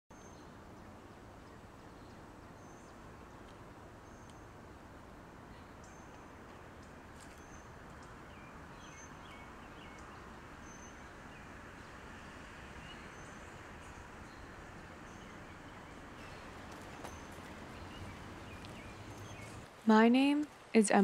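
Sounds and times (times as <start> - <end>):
faint rushing background: 0.2 - 21.0
lower bird chirps: 5.5 - 19.6.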